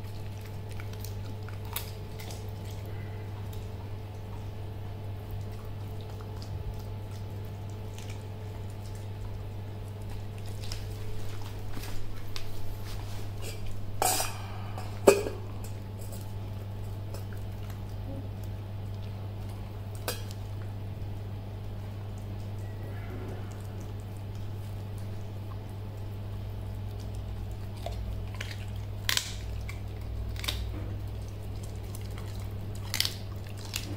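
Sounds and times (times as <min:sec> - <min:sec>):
puppy crunching bones: 0:00.0 - 0:14.0, 0:15.1 - 0:33.9
steady low hum: 0:00.0 - 0:33.9.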